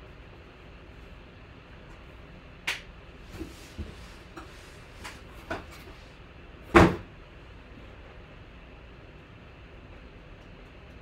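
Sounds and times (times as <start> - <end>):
loud knock: 6.7 - 7.1.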